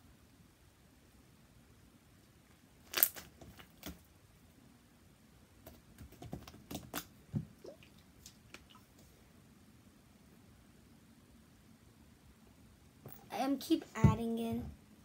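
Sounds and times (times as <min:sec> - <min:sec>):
slime popping and crackling: 0:02.8 - 0:04.0.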